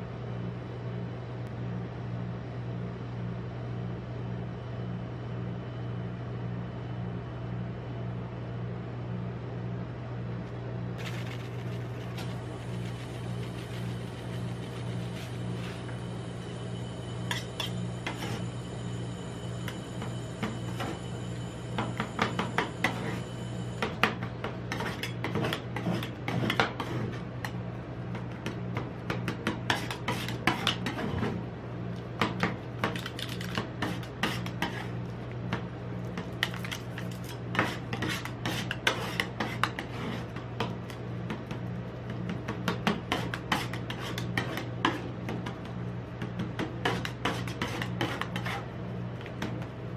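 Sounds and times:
refrigeration hum: 0.0 - 49.9
spatulas scraping ice cream: 11.0 - 15.9, 24.7 - 27.3, 29.7 - 31.4, 32.9 - 35.0, 36.2 - 40.5, 42.9 - 45.1, 46.8 - 48.7.

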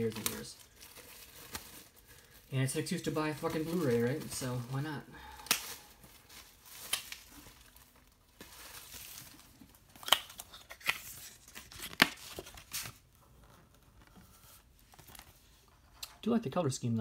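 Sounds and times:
plastic shrink wrap tearing: 0.0 - 13.0.

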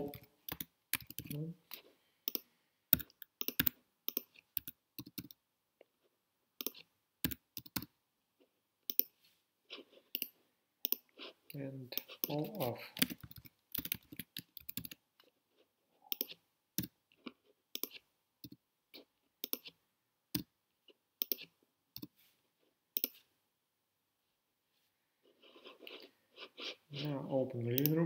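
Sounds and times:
mouse clicks: 10.1 - 11.1, 27.7 - 28.0.

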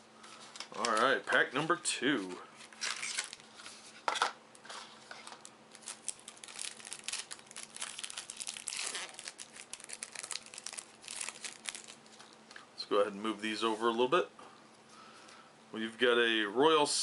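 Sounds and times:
plastic wrapping crinkling and tearing: 2.6 - 3.7, 5.1 - 12.4.

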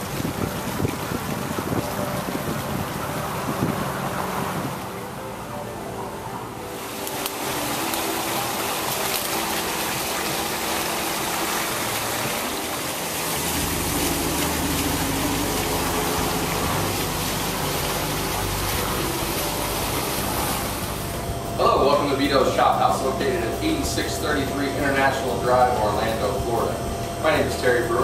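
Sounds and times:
fountain water splashing: 0.0 - 28.0
low rumble: 13.2 - 27.5.

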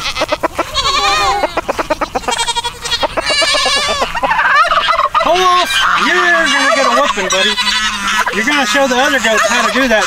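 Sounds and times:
turkeys gobbling: 0.0 - 10.0.

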